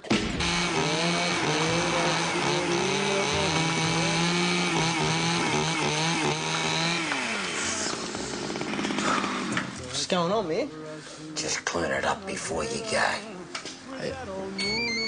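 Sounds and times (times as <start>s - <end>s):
power saw cutting meat: 0.1s - 9.8s.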